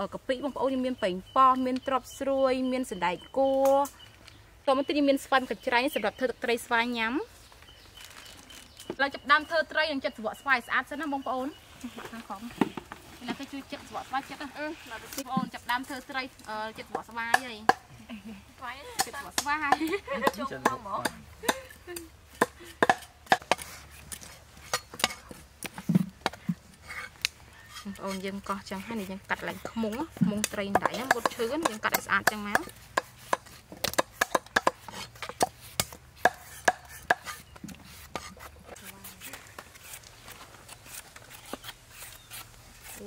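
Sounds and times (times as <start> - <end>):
cleaver chopping on wooden block: 22.4 - 23.7, 29.5 - 38.4
peeler shaving mango skin: 26.8 - 34.1, 34.7 - 43.0.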